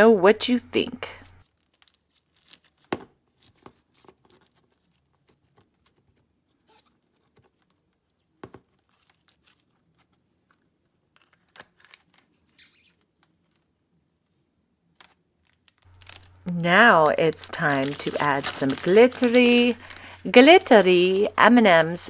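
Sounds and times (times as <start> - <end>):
slime squelching and crackling: 15.8 - 21.5.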